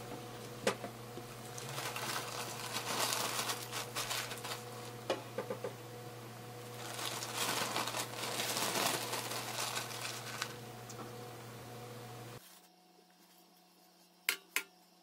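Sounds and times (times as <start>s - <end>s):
steady low hum: 0.0s - 14.3s
cloth bag rustling and crinkling: 1.4s - 5.0s, 6.6s - 10.6s.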